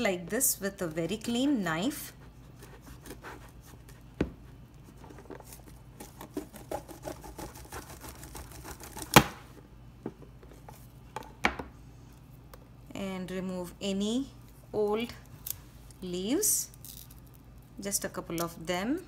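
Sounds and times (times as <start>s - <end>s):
knife sawing through bamboo stem: 6.6s - 9.0s.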